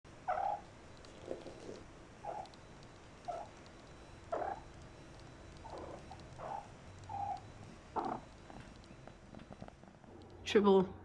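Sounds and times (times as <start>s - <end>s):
cats mewing and chirping: 0.2s - 4.8s, 5.5s - 9.7s.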